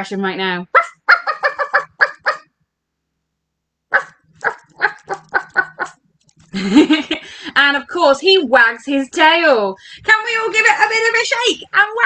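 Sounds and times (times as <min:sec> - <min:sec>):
person imitating dog barking: 0:00.7 - 0:02.4, 0:03.9 - 0:06.0.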